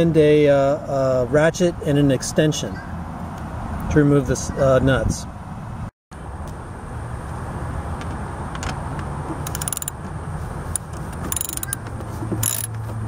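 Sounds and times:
socket ratchet clicking: 9.4 - 10.0, 10.7 - 12.8.

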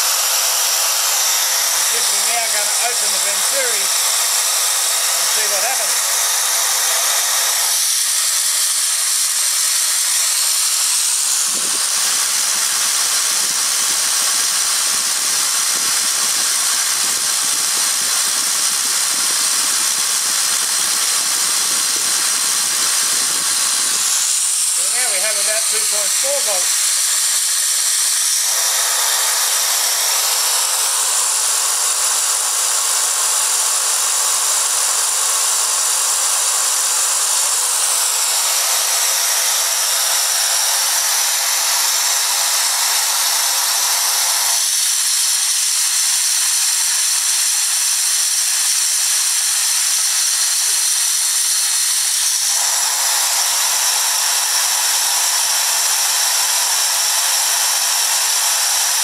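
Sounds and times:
compressed air hissing through nozzle: 0.0 - 59.0.

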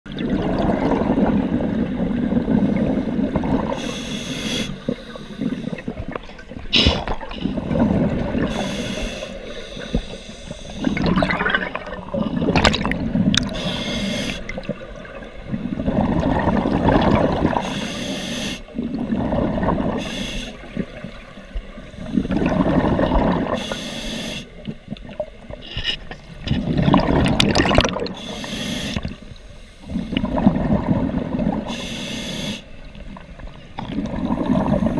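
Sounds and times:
bubbling exhaled air: 0.1 - 20.8, 22.0 - 23.8, 26.6 - 29.2, 29.8 - 32.5, 33.8 - 34.9
regulator hiss on inhale: 2.6 - 5.9, 8.4 - 11.0, 13.5 - 14.6, 17.6 - 18.8, 20.0 - 20.8, 23.5 - 24.6, 28.1 - 30.2, 31.6 - 32.9.

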